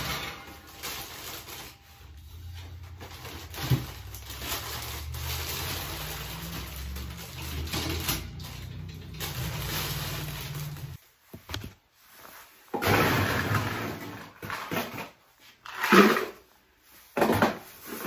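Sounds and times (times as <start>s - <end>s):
plastic bags crinkling: 0.0s - 11.8s.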